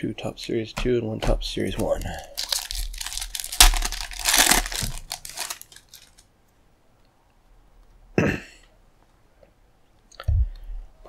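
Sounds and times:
plastic wrapper crinkling and tearing: 1.8s - 6.3s.

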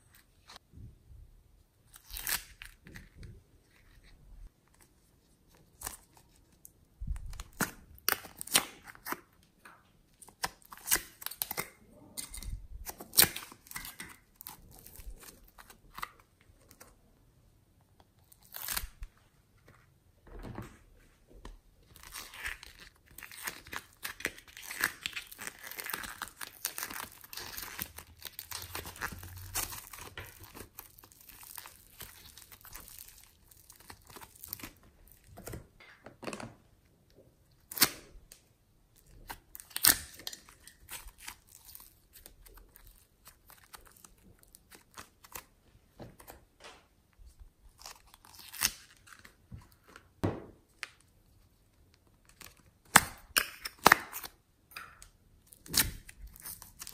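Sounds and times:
clay squeezed and torn: 1.9s - 4.9s, 21.8s - 35.6s, 39.0s - 45.5s, 47.6s - 50.0s, 51.9s - 56.9s.

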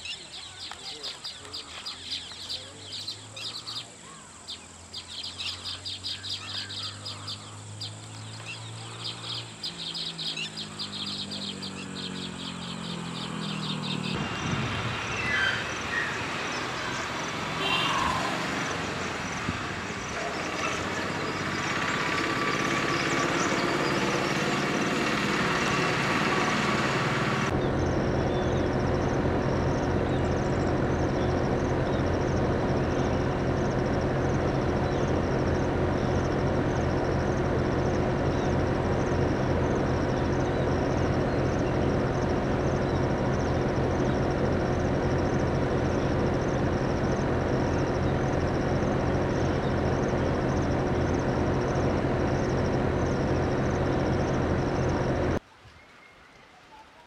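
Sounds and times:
passing vehicle engine hum: 0.0s - 55.4s
small birds chirping: 0.0s - 57.0s
steady low engine drone: 0.9s - 55.4s
fast buzzy bird call: 17.6s - 18.8s.

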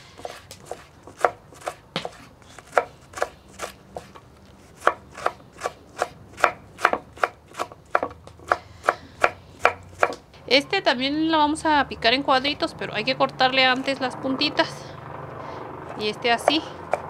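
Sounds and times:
knife chopping on wooden board: 0.2s - 10.2s, 16.4s - 17.0s.

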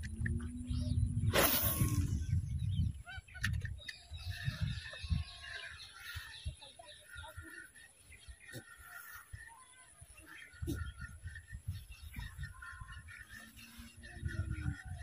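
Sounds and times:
birds honking: 2.9s - 15.0s.

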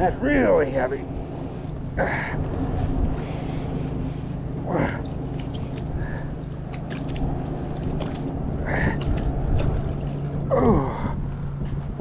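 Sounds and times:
low hum: 0.0s - 12.0s
man breathing hard and grunting: 4.6s - 5.1s, 8.6s - 9.0s, 10.5s - 11.3s.

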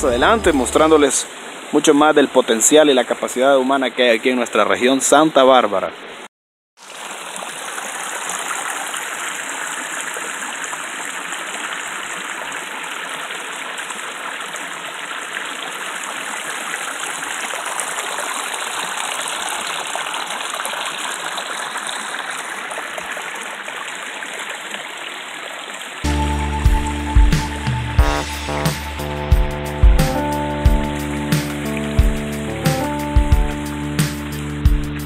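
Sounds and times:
creek rushing over rocks: 0.0s - 6.2s, 6.8s - 26.1s.

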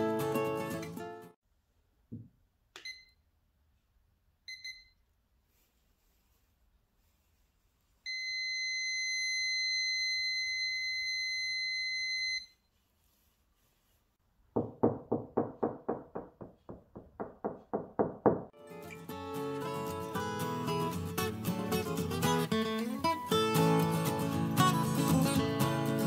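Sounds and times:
acoustic guitar music: 0.0s - 1.4s, 18.6s - 26.0s
knocks on plasterboard wall: 14.5s - 18.6s.

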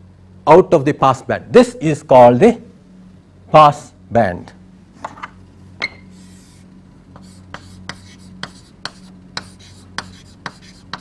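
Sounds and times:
steady low hum: 0.0s - 11.0s
writing strokes ticking: 6.2s - 11.0s.

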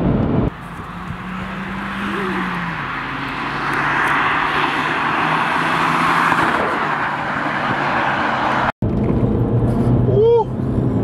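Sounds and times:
low engine hum: 0.0s - 6.1s, 8.8s - 11.0s
car driving past: 0.6s - 8.7s.

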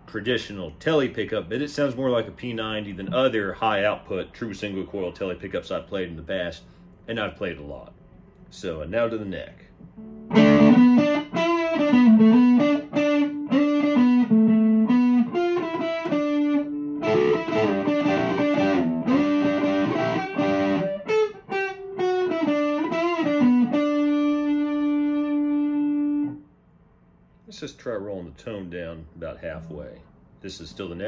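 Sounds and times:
overdriven electric guitar lead: 10.0s - 26.4s.

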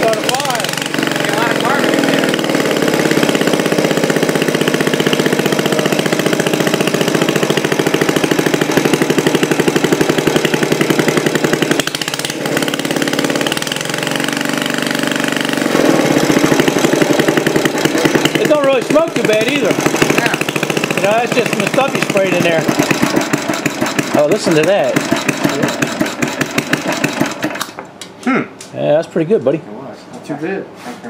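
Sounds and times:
small engine running: 0.0s - 27.8s.

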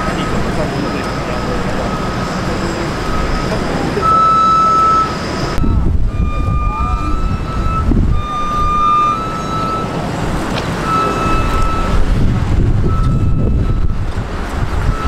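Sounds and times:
held beeping tones: 0.0s - 10.0s, 10.8s - 12.0s
vehicle engine rumbling: 0.0s - 15.0s
wind buffeting microphone: 0.0s - 15.0s.

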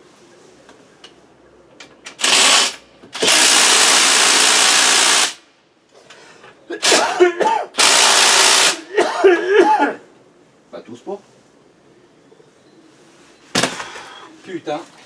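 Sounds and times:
impact wrench bursts: 2.1s - 5.5s, 6.8s - 7.1s, 7.8s - 8.9s.

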